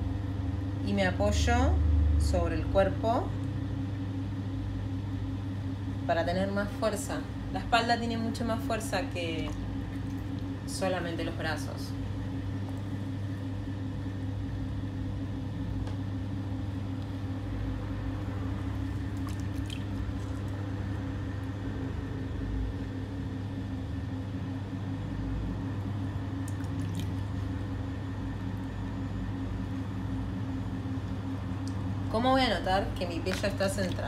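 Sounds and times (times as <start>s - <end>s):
pottery wheel humming: 0.0s - 34.0s
wet clay squelching: 18.8s - 20.7s, 32.8s - 34.0s.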